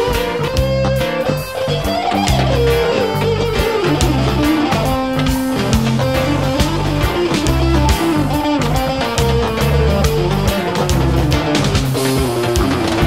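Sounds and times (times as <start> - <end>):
bass line: 0.0 - 13.0
electric guitar melody: 0.0 - 13.0
steady drum beat: 0.0 - 13.0.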